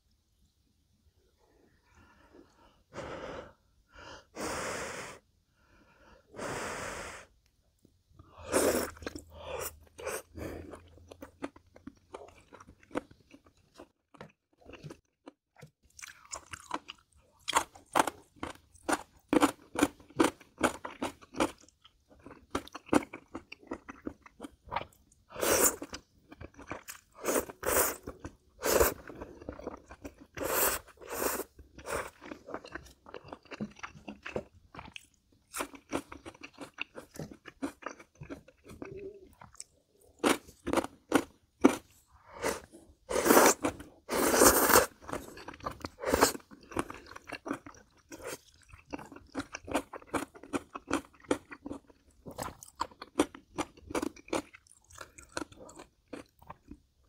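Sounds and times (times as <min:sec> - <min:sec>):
crunchy chewing: 0:09.8 - 0:56.8
slurping noodles: 0:27.2 - 0:29.4, 0:30.2 - 0:32.2, 0:41.6 - 0:46.5.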